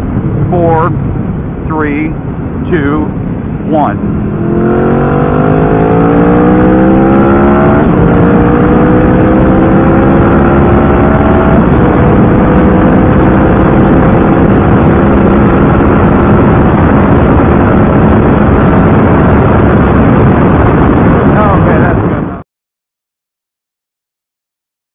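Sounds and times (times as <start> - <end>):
motorcycle engine accelerating: 0.0 - 22.4
wind rush: 0.0 - 22.4.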